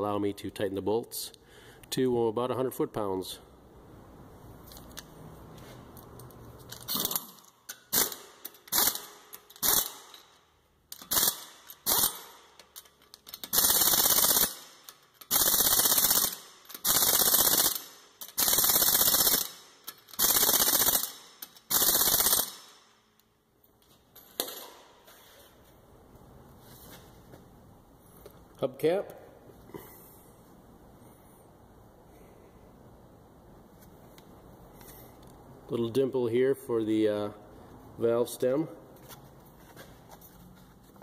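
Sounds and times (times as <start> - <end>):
impact wrench hammering: 6.8 - 23.0.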